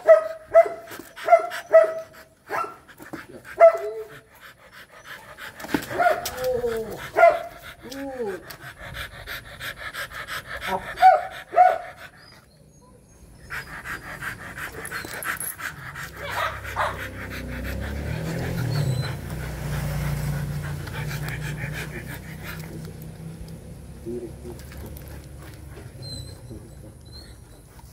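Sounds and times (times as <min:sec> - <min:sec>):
dogs panting: 0:00.0 - 0:27.9
dog whining: 0:05.9 - 0:08.5, 0:10.6 - 0:19.4, 0:25.8 - 0:27.8.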